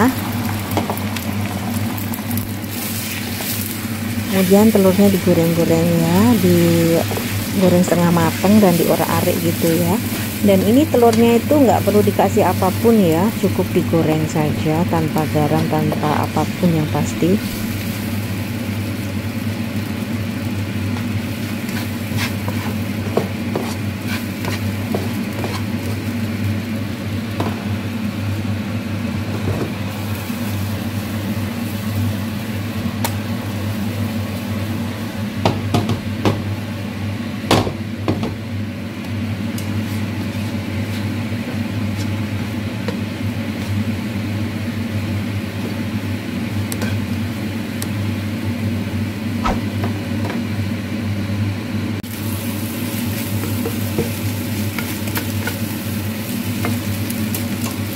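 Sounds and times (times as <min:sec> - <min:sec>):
steady low hum: 0:00.0 - 0:27.0
eggs sizzling in oil: 0:00.0 - 0:28.5, 0:52.0 - 0:57.9.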